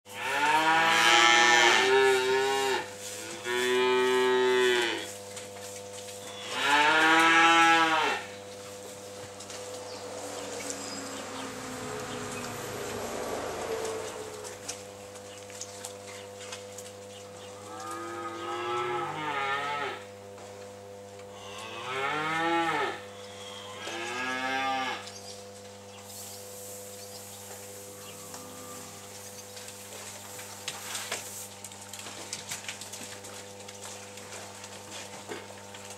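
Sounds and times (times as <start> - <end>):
calves mooing: 0.1 - 5.1, 6.2 - 8.4, 17.6 - 20.1, 21.3 - 25.2, 27.8 - 29.2
steady hum: 8.3 - 17.3.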